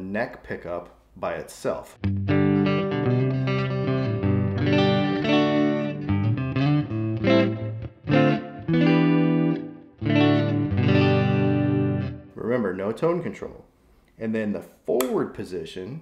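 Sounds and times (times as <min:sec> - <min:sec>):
electric guitar notes and chords: 0:02.0 - 0:12.3.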